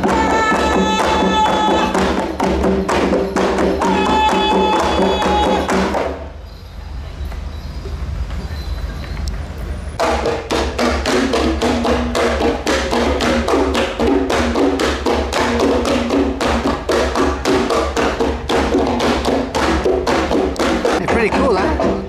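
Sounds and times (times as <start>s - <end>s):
fast drumming: 0.0s - 6.3s, 10.0s - 22.0s
ringing pitched notes: 0.5s - 5.8s.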